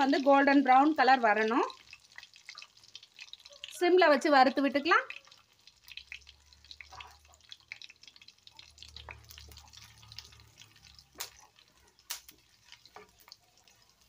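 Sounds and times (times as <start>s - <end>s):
spices crackling in oil: 0.0s - 14.0s
spatula stirring pan: 1.8s - 3.7s, 5.0s - 14.0s.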